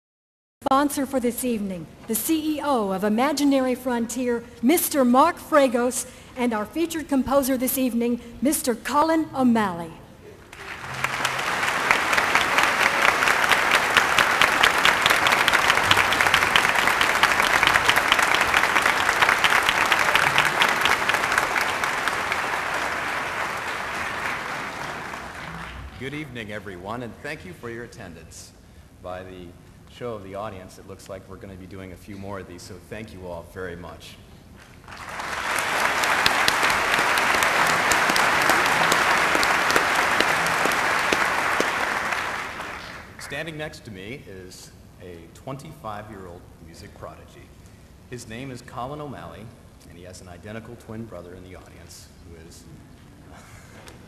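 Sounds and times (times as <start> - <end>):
audience applauding: 10.4 - 26.4, 34.6 - 43.5
single sharp claps: 35.0 - 43.1.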